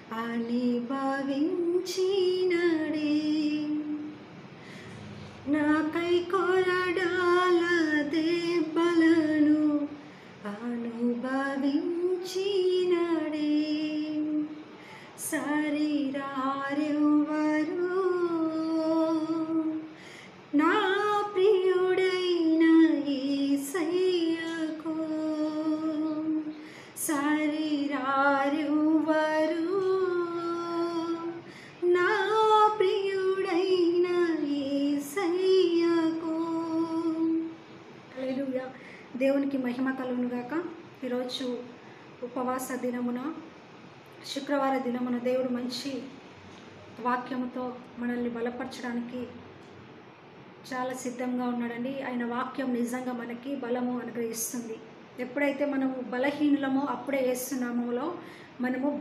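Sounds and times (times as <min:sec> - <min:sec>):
woman singing unaccompanied: 0:00.0 - 0:04.4, 0:05.4 - 0:43.5.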